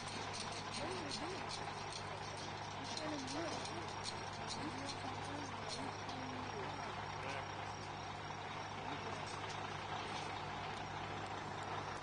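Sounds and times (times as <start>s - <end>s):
heavy truck engine running: 0.0s - 12.0s.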